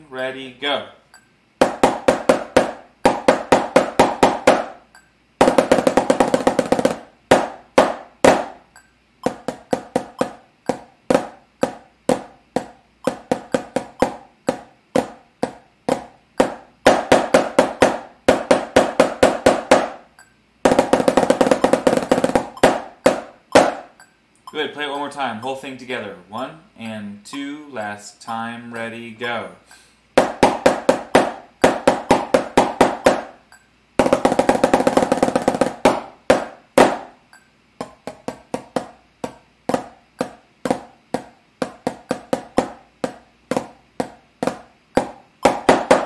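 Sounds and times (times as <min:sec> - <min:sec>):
snare drum strokes and rolls: 0:01.6 - 0:04.8, 0:05.4 - 0:08.6, 0:09.2 - 0:20.0, 0:20.6 - 0:23.9, 0:30.2 - 0:33.4, 0:34.0 - 0:37.2, 0:37.8 - 0:46.0.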